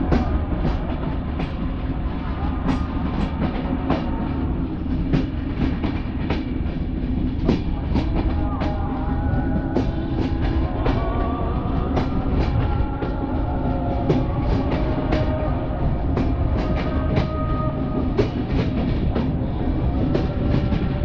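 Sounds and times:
train rumbling on track: 0.0 - 21.0.

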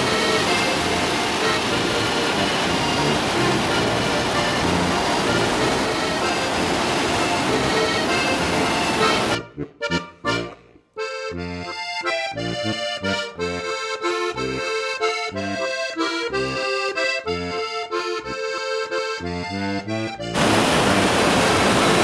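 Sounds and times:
rush of water: 0.0 - 9.4, 20.3 - 22.0
instrumental music with bass beat: 7.5 - 20.8.

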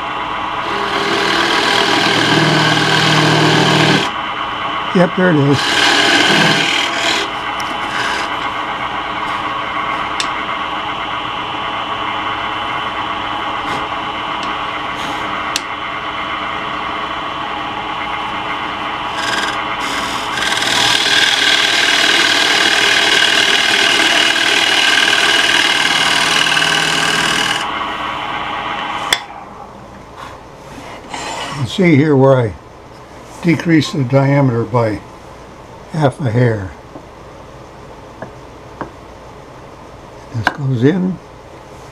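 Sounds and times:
turning tool scraping wood: 0.6 - 4.1, 5.5 - 8.5, 19.1 - 27.7
wood lathe running: 0.6 - 4.2, 4.9 - 9.4, 17.5 - 27.8.

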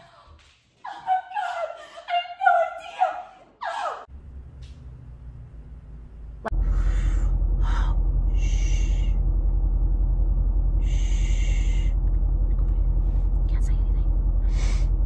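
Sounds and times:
loud steady low rumble: 4.1 - 15.0.

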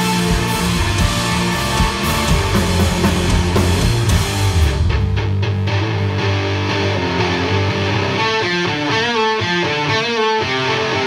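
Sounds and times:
drum hits: 0.0 - 5.5
distorted electric guitar: 0.0 - 11.0
heavy rock band playing: 0.0 - 11.0.

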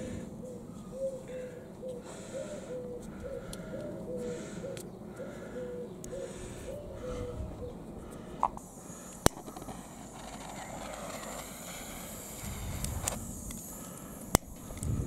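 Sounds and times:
pigeon cooing: 0.0 - 8.3.

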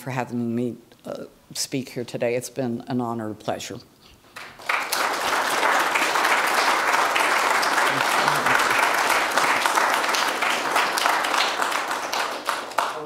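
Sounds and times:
audience applauding: 4.4 - 13.0.

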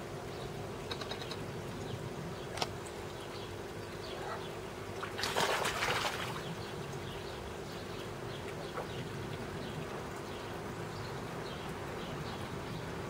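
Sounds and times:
fish splashing in pond: 5.0 - 6.6.

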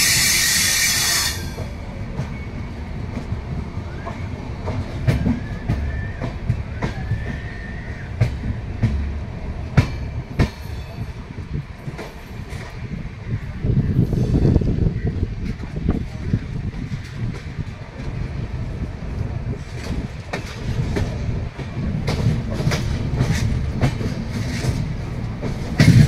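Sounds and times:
loud air hiss: 0.0 - 1.6
faint wheel squeal: 0.0 - 2.5
train coach rumbling: 0.0 - 26.0
wheel clacks over rail joints: 1.3 - 13.2, 13.9 - 26.0.

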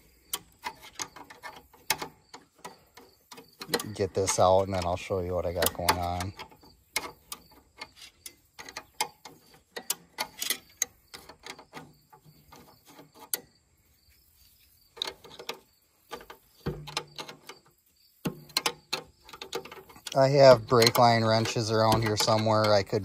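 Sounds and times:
wrench clicking on metal nut: 0.2 - 11.8, 18.3 - 23.0.

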